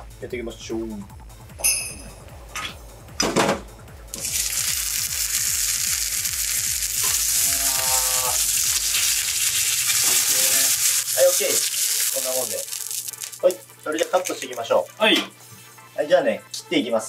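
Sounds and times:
beef sizzling in frying pan: 4.1s - 15.0s.

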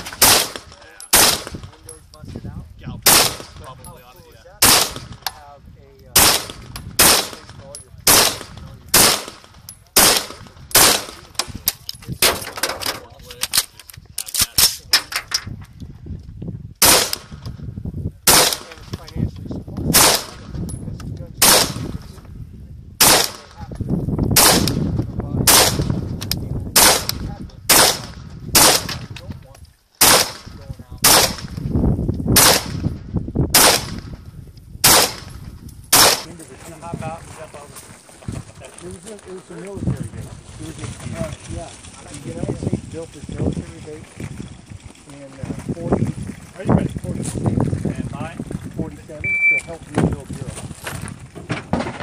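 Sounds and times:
rifle shots: 0.0s - 1.8s, 3.0s - 3.8s, 4.6s - 5.2s, 6.1s - 11.4s, 16.8s - 17.4s, 18.2s - 18.9s, 19.9s - 20.5s, 21.4s - 22.1s, 23.0s - 23.6s, 24.4s - 26.0s, 26.7s - 29.1s, 30.0s - 31.6s, 32.4s - 34.1s, 34.8s - 36.4s.

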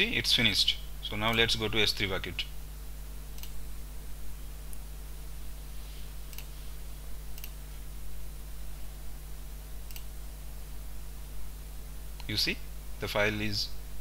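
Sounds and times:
low electrical hum: 0.0s - 14.0s
computer mouse clicks: 3.3s - 3.6s, 6.3s - 6.5s, 7.3s - 7.6s, 9.9s - 10.1s.

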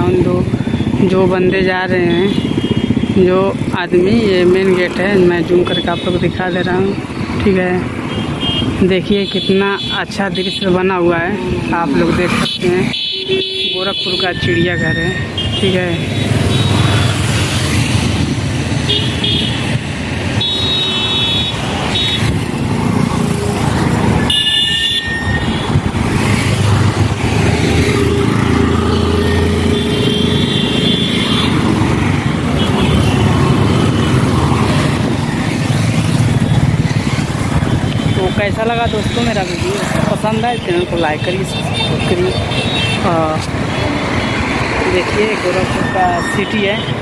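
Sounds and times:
motorbike engines running: 0.0s - 47.0s
road traffic: 0.0s - 47.0s
vehicle horns beeping: 8.0s - 10.8s, 12.3s - 17.2s, 18.8s - 19.7s, 20.4s - 22.4s, 24.2s - 25.8s, 28.8s - 31.6s, 32.5s - 34.2s, 40.4s - 44.5s, 45.1s - 47.0s.

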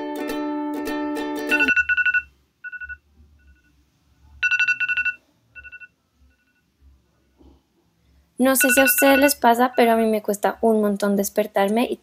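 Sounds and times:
background music: 0.0s - 1.9s
alarm beeping: 1.5s - 3.6s, 4.4s - 6.6s, 8.6s - 10.0s.

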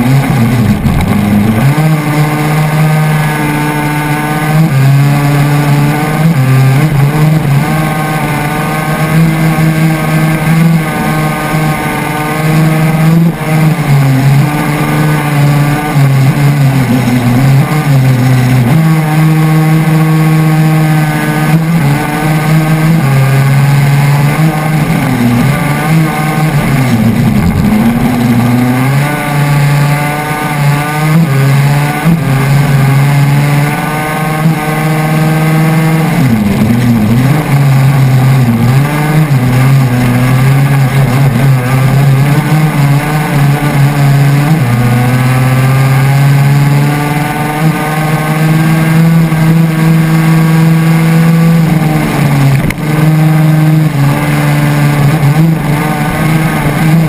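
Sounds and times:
two-stroke kart engine racing: 0.0s - 57.0s.

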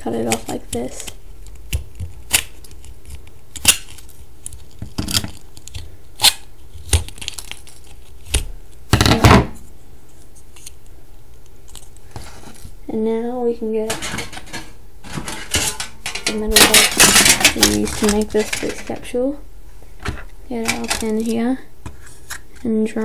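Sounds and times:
metal scraps dropping on table: 13.9s - 19.0s, 20.0s - 21.3s
metallic clatter: 13.9s - 19.0s, 20.6s - 21.3s.

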